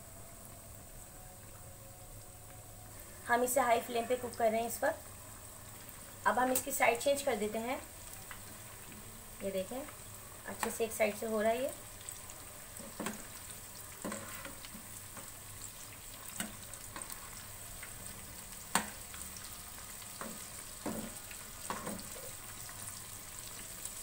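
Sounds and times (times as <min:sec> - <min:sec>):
meat sizzling in hot oil: 0:02.0 - 0:24.0.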